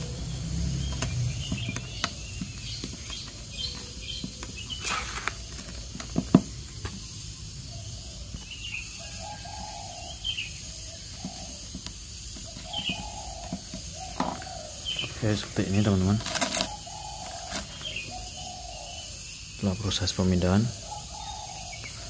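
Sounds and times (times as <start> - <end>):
birds chirping: 0.0 - 22.0
hands scraping potting mix: 0.9 - 7.2, 11.0 - 18.0.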